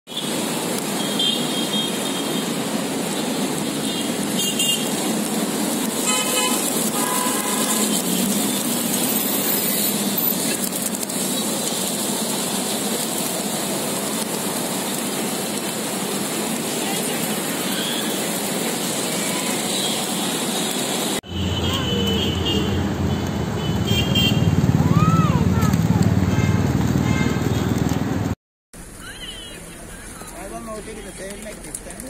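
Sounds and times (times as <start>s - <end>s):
city traffic noise: 0.1s - 32.0s
pigeon wings fluttering: 4.3s - 20.0s
vehicle horns tooting: 6.0s - 8.3s, 21.2s - 24.6s, 26.2s - 27.8s.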